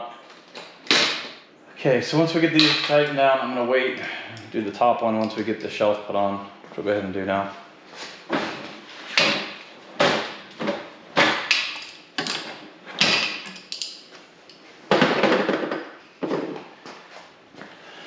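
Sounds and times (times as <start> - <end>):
steel frame knocks and clatters: 14.9 - 16.6.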